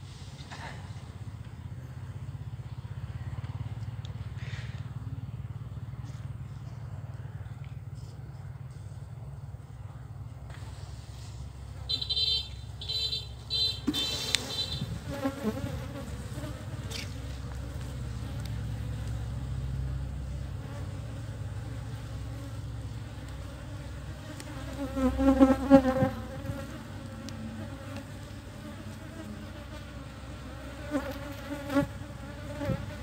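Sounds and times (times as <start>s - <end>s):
bees buzzing: 11.8s - 33.0s.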